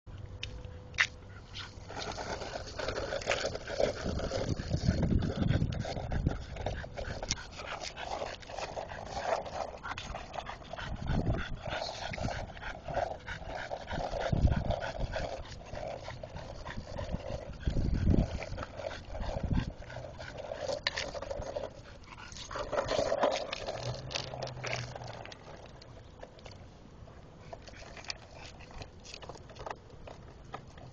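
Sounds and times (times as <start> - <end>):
skateboard wheels rolling on asphalt: 0.4 - 30.9
dog panting: 1.3 - 25.4.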